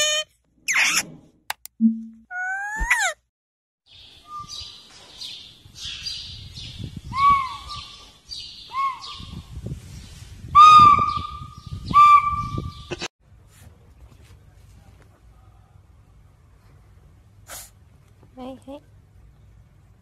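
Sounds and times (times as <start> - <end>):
parakeet squeak: 0.0 - 1.0.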